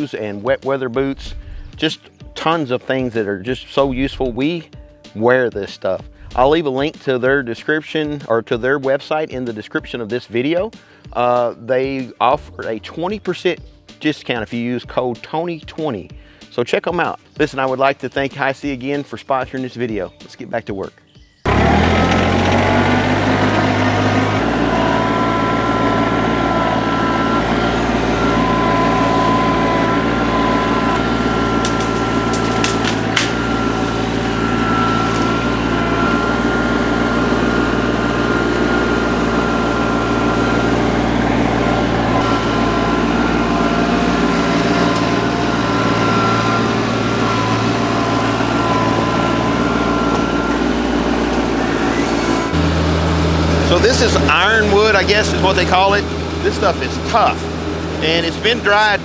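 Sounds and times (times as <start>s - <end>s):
tractor engines running: 0.0s - 4.6s, 6.2s - 7.5s, 21.5s - 59.0s
wood chipper whining: 1.0s - 2.0s, 3.6s - 4.6s, 6.1s - 7.4s, 21.4s - 59.0s.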